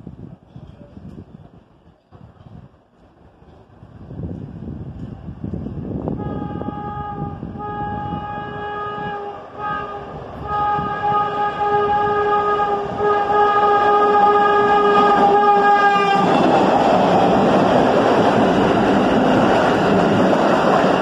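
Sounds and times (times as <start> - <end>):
subway train rumble: 0.0 - 21.0
train horn blasts: 6.1 - 16.6.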